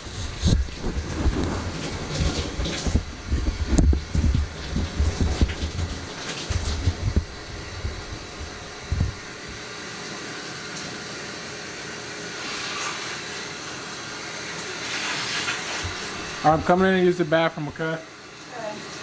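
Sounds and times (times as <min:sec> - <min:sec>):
shower water spray hiss: 0:14.6 - 0:16.6.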